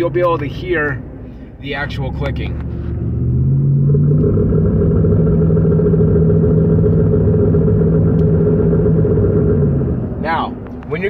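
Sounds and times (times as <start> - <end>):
car engine droning under load: 0.0 - 11.0.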